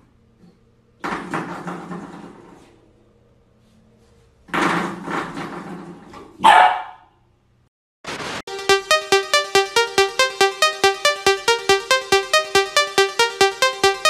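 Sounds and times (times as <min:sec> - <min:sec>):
puppy barking: 0:06.4 - 0:07.1.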